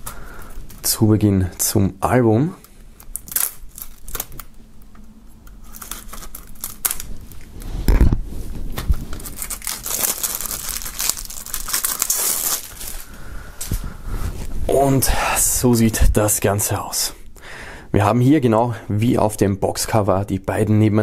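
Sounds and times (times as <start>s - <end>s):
plastic crinkling and tearing: 2.7s - 4.6s, 5.4s - 13.8s
knife slitting plastic wrap: 5.6s - 7.5s, 8.8s - 13.0s.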